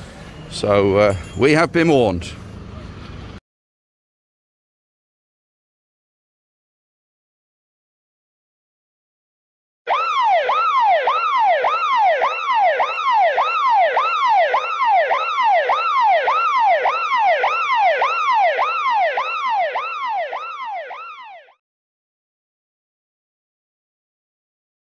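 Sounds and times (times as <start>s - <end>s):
electronic siren sweeping: 9.9s - 21.6s.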